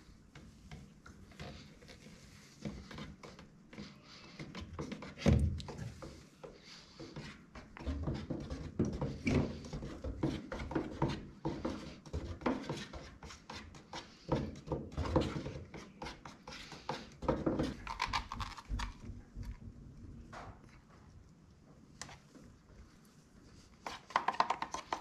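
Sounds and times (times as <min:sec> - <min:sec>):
stir stick knocking inside plastic cup: 0:07.0 - 0:19.6, 0:23.8 - 0:25.0.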